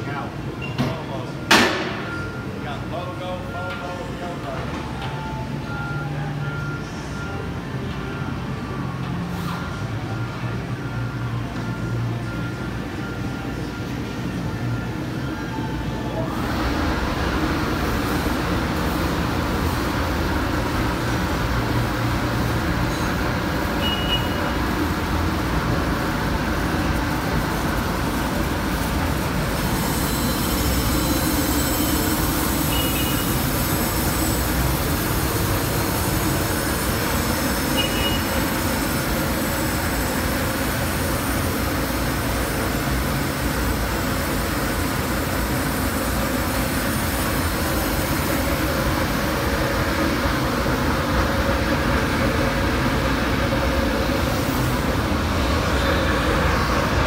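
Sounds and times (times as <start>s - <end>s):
grinding wheel hissing on metal: 28.4s - 40.1s.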